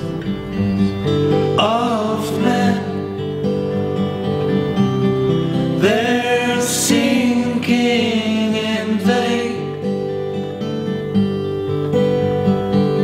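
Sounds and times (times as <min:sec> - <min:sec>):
acoustic guitars strumming: 0:00.0 - 0:13.0
man singing: 0:01.5 - 0:03.2, 0:05.8 - 0:09.9.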